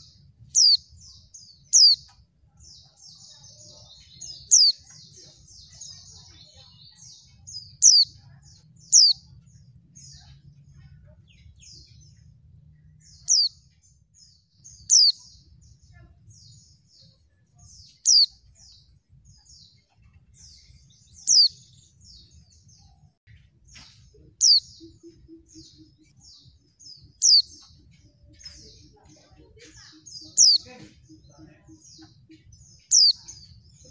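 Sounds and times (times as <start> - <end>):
bird soft twittering: 0.0 - 2.2, 5.7 - 10.4, 11.3 - 13.6, 17.8 - 18.7, 23.7 - 26.5, 27.1 - 28.9, 31.8 - 33.9.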